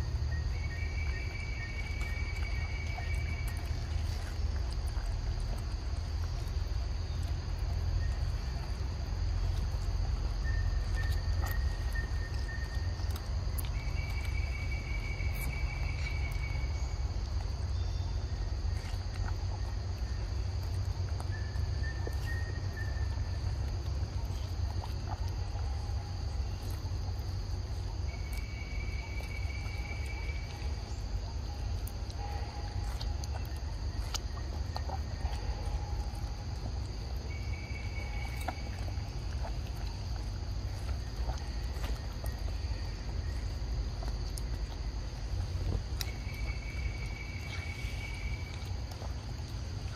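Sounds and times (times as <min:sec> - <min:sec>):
insects droning: 0:00.0 - 0:49.9
whistled bird notes: 0:00.2 - 0:04.2, 0:10.4 - 0:17.0, 0:21.3 - 0:23.3, 0:46.0 - 0:48.7.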